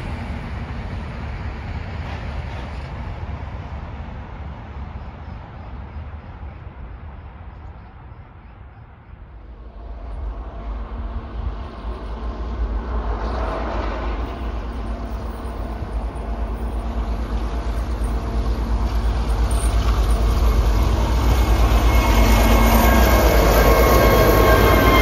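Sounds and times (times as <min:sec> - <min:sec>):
diesel locomotive engine throbbing: 0:00.0 - 0:25.0
high whine: 0:09.2 - 0:25.0.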